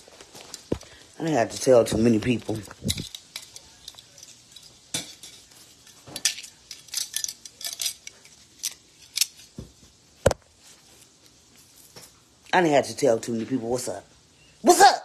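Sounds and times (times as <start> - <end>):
small hard objects clicking: 2.4 - 9.5.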